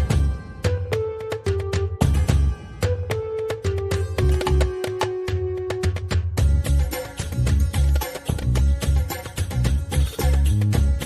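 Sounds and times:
drum beat: 0:03.6 - 0:11.0.

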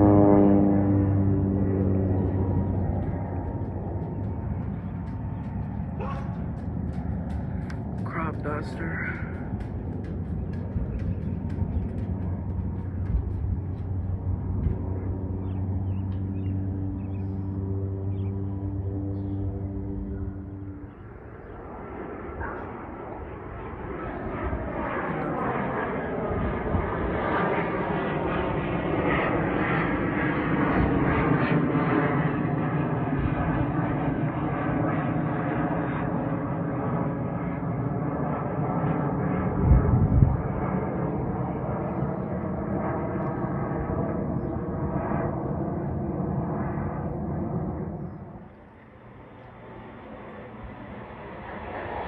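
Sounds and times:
jet aircraft passing overhead: 0:00.0 - 0:52.0.

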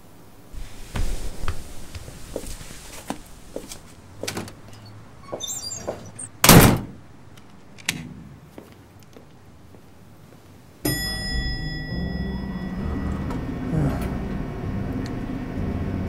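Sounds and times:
door swinging shut: 0:04.2 - 0:07.0
lock and handle clicks: 0:06.4 - 0:08.2
elevator running hum: 0:10.9 - 0:16.0.

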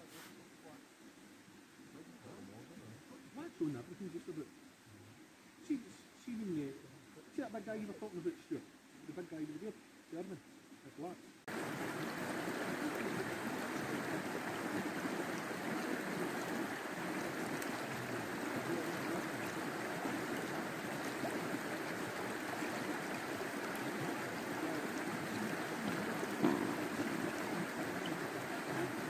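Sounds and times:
stream water flowing: 0:11.4 - 0:29.0.

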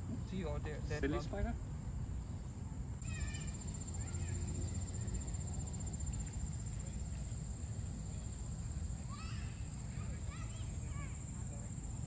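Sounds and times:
insects trilling: 0:03.0 - 0:12.0.

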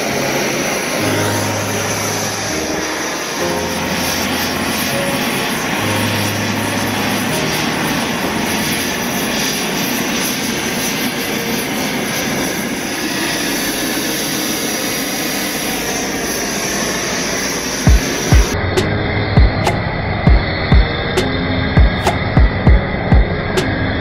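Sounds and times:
gas torch flame hissing: 0:00.0 - 0:18.6.

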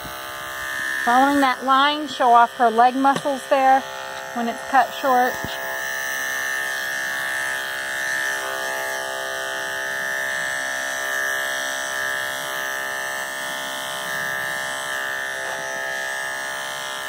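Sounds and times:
electric clippers buzzing: 0:00.0 - 0:17.0.

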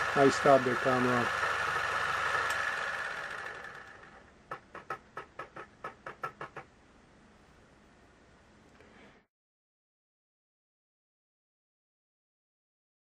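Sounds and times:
film camera mechanism winding down: 0:00.0 - 0:04.2.

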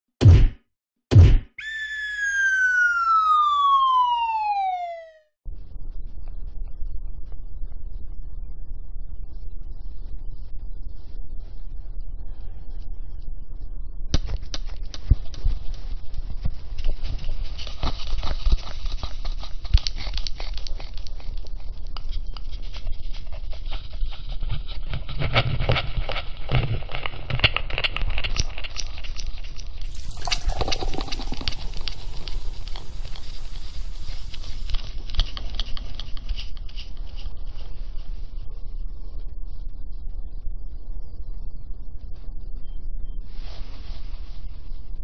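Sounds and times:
short falling tone: 0:01.1 - 0:05.2
cat litter scooped and sifted: 0:29.8 - 0:35.7.

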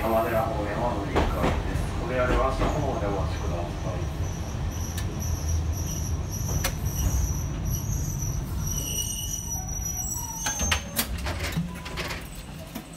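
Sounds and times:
streetcar motor and wheels rumbling: 0:00.0 - 0:12.9
wheel squeal on rails: 0:04.2 - 0:12.5.

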